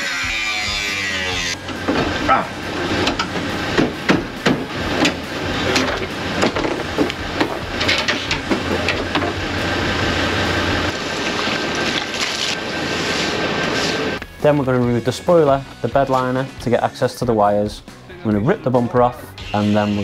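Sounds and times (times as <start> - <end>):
hand tools knocking on metal: 1.6 - 9.5.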